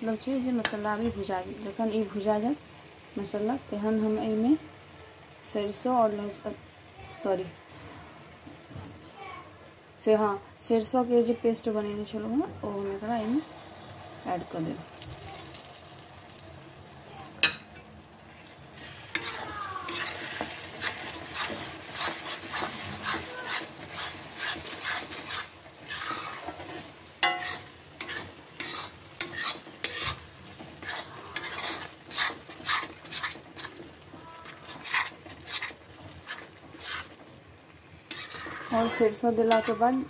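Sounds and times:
spices sizzling in oil: 0.0 - 40.0
utensil scraping a pan: 18.8 - 37.3, 38.1 - 40.0.

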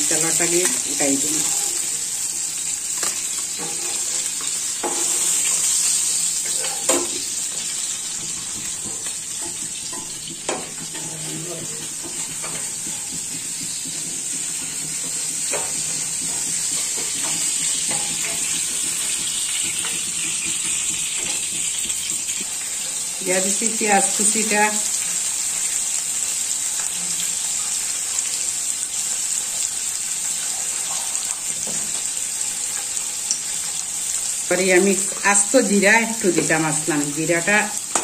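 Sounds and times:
fish sizzling in oil: 0.0 - 38.0
spatula knocking and scraping pan: 0.2 - 25.0, 36.8 - 38.0.

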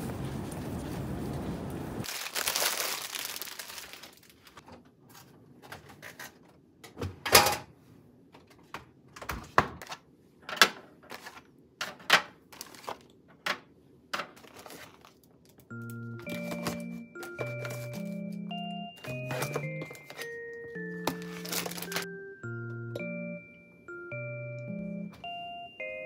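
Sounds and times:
packaging rustling: 2.0 - 5.3, 12.5 - 13.1, 14.4 - 18.4, 19.0 - 22.1
items knocking as set down: 16.2 - 18.4, 19.0 - 22.1.

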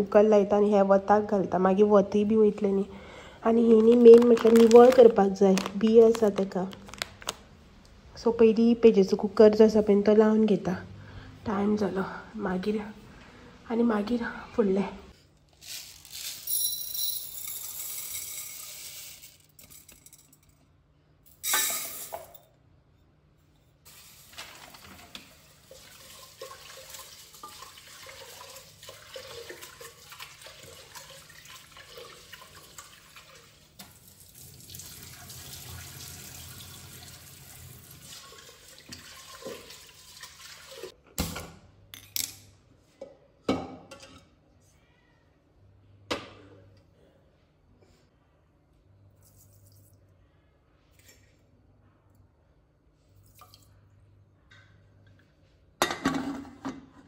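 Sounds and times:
tap water running into a pot: 23.9 - 41.0.

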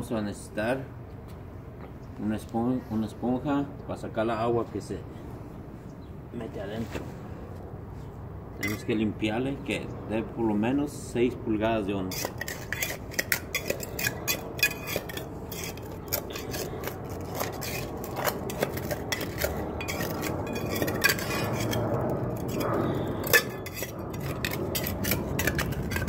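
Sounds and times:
metal tool scraping concrete: 8.6 - 8.9, 12.0 - 26.0.

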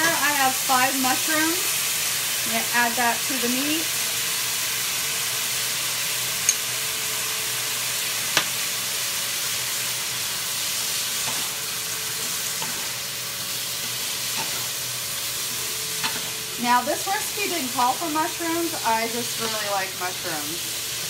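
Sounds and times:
meat and mushrooms sizzling: 0.0 - 21.0
spatula stirring: 10.7 - 16.6.

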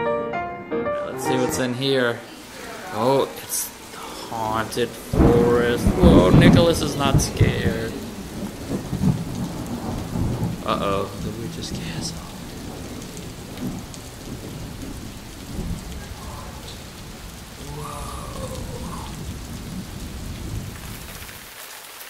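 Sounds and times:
steady rain: 1.5 - 22.0
low rumbling thunder: 4.2 - 21.3.

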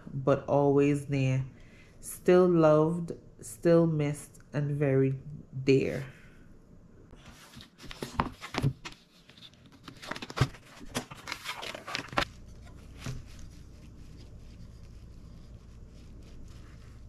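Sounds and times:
faint low hum: 9.4 - 17.0.

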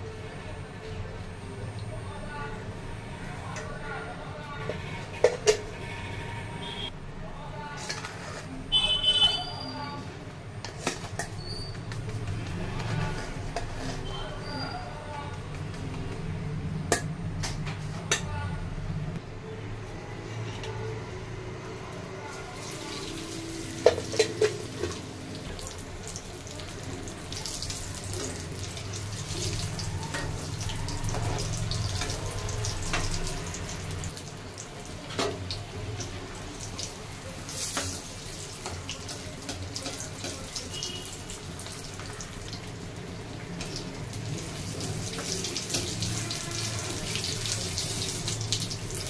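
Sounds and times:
hot oil sizzling: 22.5 - 49.0
ladle tapping and scraping pan: 23.8 - 25.0.

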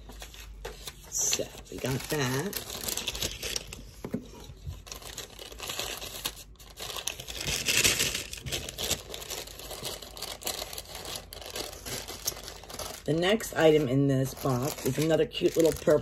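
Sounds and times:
paper packaging rustling: 0.0 - 16.0.

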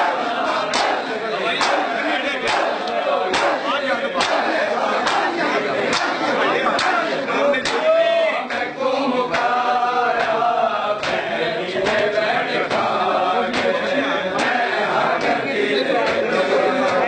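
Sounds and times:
men chanting in unison: 0.0 - 17.0
chest-beating slaps: 0.7 - 1.0, 1.6 - 7.0, 11.0 - 12.1.

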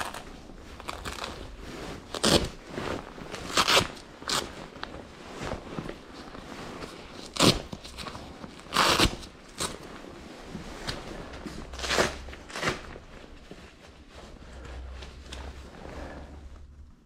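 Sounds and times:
gloves and sleeves rustling: 0.0 - 17.0.

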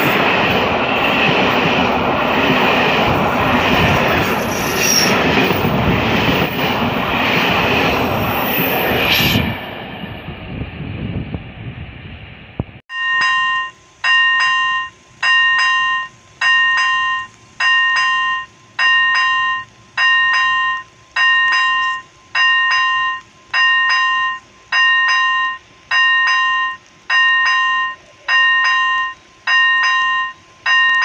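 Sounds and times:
level crossing bell clanging: 12.9 - 31.0.

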